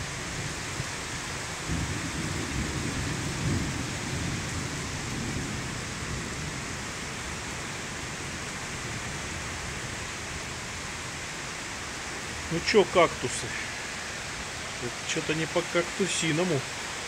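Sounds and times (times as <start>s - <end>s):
rain falling on pavement: 0.0s - 17.0s.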